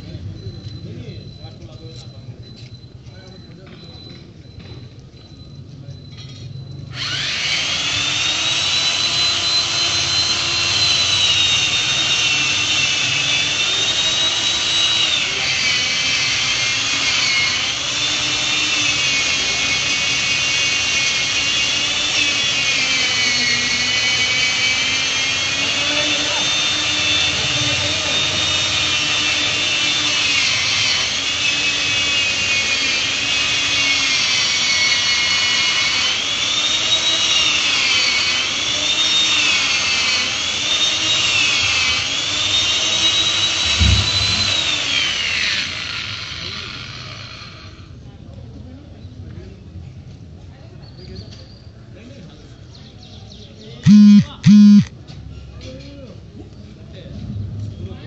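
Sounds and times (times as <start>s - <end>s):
chainsaw cutting tree trunk: 6.9s - 17.4s, 34.9s - 47.2s.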